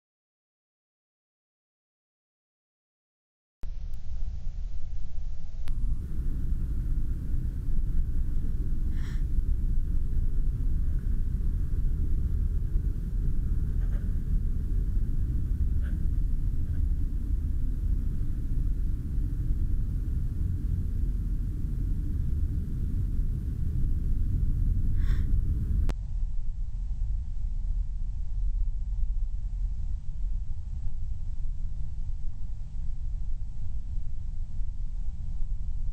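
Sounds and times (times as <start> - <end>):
car engine and tyres rumbling: 5.7 - 25.9.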